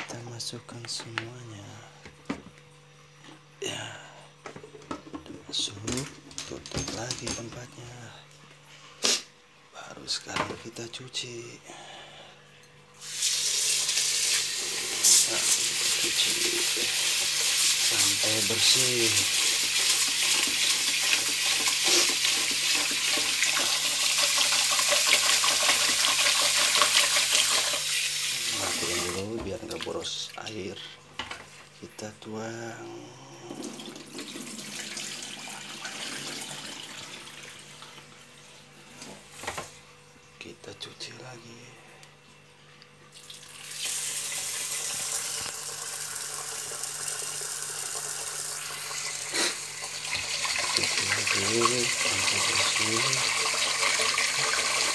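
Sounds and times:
tap water pouring into pot: 0:13.0 - 0:29.9, 0:33.6 - 0:38.0, 0:43.1 - 0:54.9.

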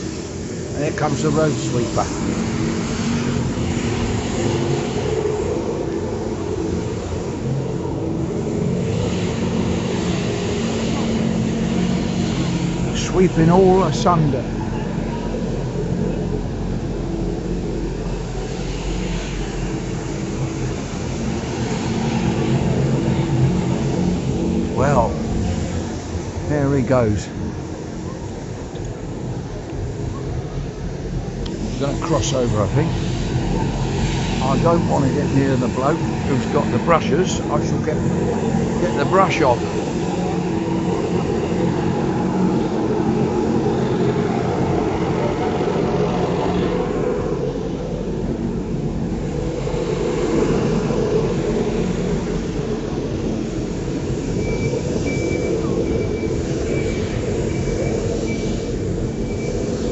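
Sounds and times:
road sweeper engine running: 0:00.0 - 0:59.9
sweeping brushes hissing on road: 0:00.0 - 0:59.9.

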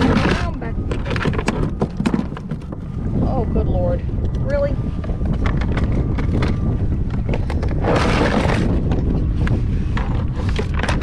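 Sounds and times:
wind rumble on microphone: 0:00.0 - 0:11.0
fish flopping against boat: 0:07.2 - 0:08.9.

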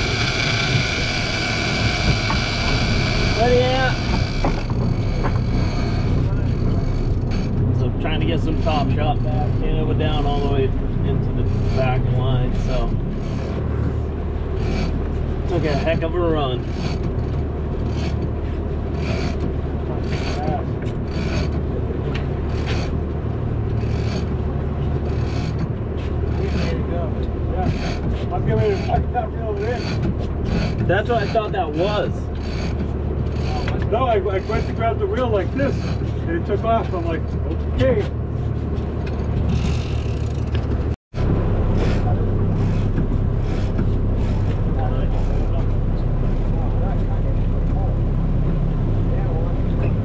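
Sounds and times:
fishing reel raspy bursts: 0:00.0 - 0:06.2
boat engine running: 0:00.0 - 0:50.0
wind: 0:00.0 - 0:50.0.

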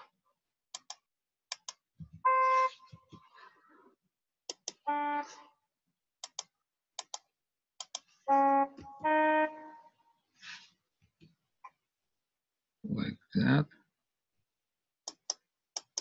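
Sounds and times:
computer mouse clicking: 0:00.7 - 0:01.8, 0:04.5 - 0:04.8, 0:06.2 - 0:08.1, 0:15.1 - 0:16.0.

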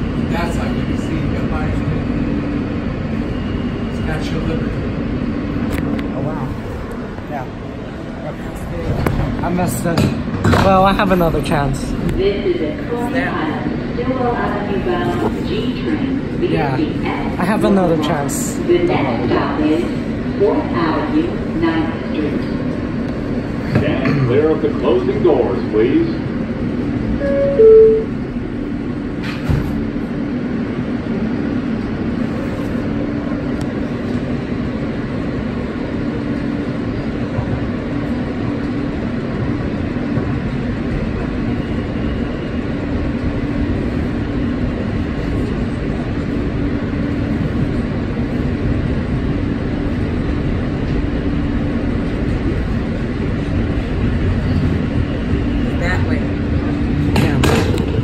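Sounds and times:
subway car rumbling: 0:00.0 - 0:58.0
subway doors knocking shut: 0:08.8 - 0:11.1, 0:29.1 - 0:30.0, 0:56.9 - 0:58.0
two-note door chime: 0:27.2 - 0:28.1.

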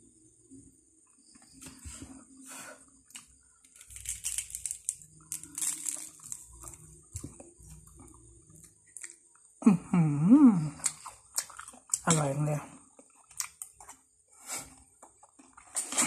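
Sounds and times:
crispy food crunching: 0:03.1 - 0:09.5, 0:10.8 - 0:14.1.

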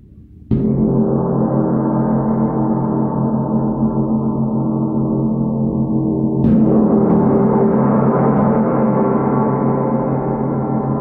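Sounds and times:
mallet striking gong: 0:06.3 - 0:11.0
wind gong ringing: 0:06.4 - 0:11.0.

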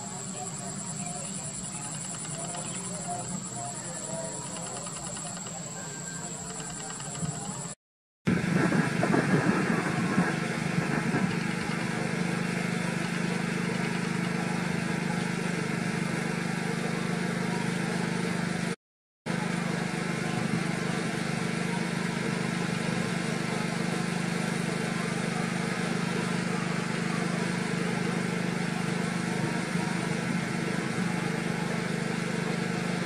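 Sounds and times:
engine humming: 0:08.3 - 0:33.0.

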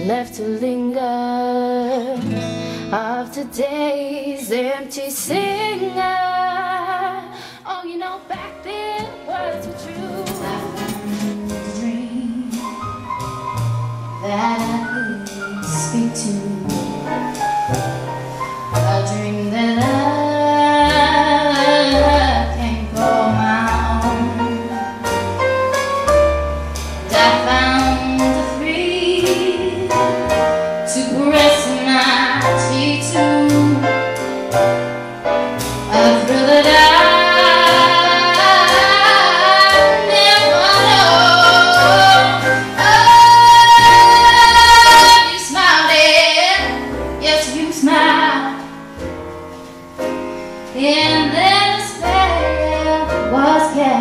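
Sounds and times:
woman singing: 0:00.0 - 0:12.8, 0:14.2 - 0:17.1, 0:18.8 - 0:24.7, 0:27.1 - 0:30.3, 0:30.9 - 0:34.0, 0:35.9 - 0:48.7, 0:50.8 - 0:54.0
piano trio accompaniment: 0:00.0 - 0:54.0
bass notes: 0:08.2 - 0:54.0.

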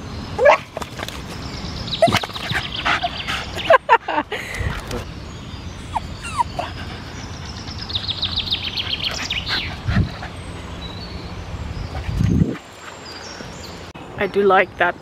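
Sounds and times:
dog whining: 0:05.8 - 0:07.4.

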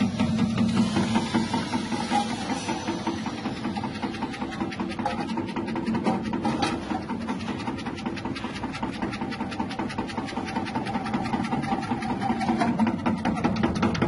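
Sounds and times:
electric slicer motor humming: 0:00.0 - 0:13.0
clatter of potato slicing: 0:03.8 - 0:14.0.

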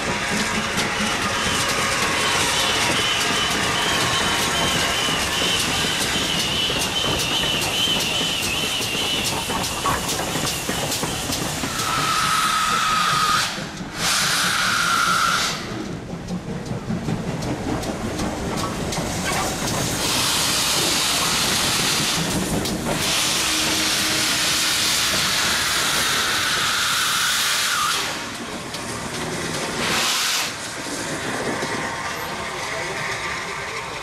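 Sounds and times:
steam locomotive exhaust chuffs: 0:00.0 - 0:34.0
steam venting hiss: 0:03.7 - 0:15.7, 0:19.5 - 0:28.4, 0:29.6 - 0:31.5.

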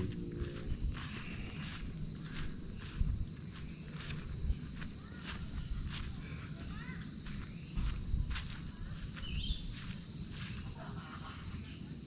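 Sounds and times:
wind rumble on microphone: 0:00.0 - 0:10.3
footsteps: 0:00.0 - 0:11.4
high-pitched insect hum: 0:00.0 - 0:12.0
bird chirp: 0:08.7 - 0:10.0.

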